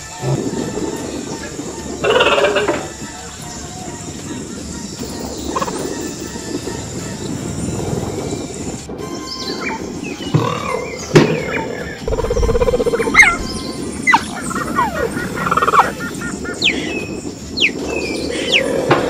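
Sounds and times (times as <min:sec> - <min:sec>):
low pulsing animal call: 0:02.0 - 0:03.0, 0:09.5 - 0:19.0
falling whistle-like calls: 0:09.1 - 0:18.8.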